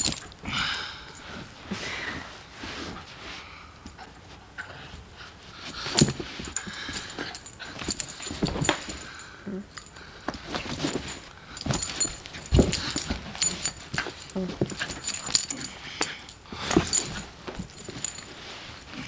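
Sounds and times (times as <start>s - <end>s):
collar tags jingling: 0.0s - 1.6s, 5.6s - 19.0s
scuffles and thumps on carpet: 10.3s - 19.0s.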